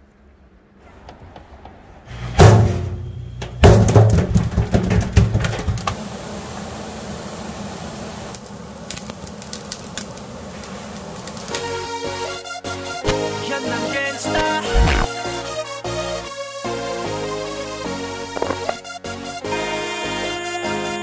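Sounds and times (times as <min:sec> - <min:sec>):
fish sizzling on charcoal grill: 0:06.0 - 0:13.1.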